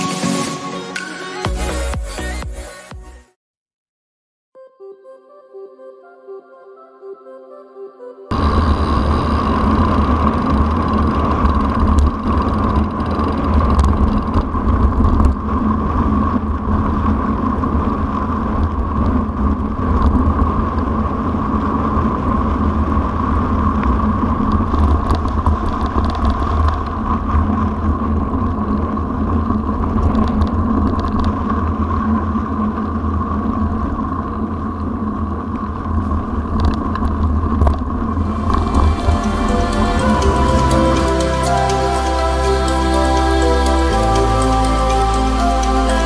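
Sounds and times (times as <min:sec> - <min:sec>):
wind and tyre rumble: 0:08.3 - 0:42.5
constant hum: 0:08.3 - 0:46.0
faint bike clicks: 0:10.0 - 0:15.5.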